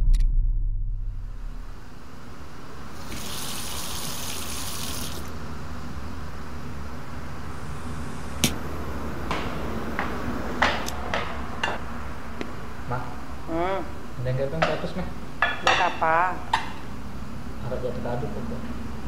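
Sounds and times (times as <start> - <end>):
steady low hum: 0.0 - 19.0
kitchen tap running: 3.0 - 5.3.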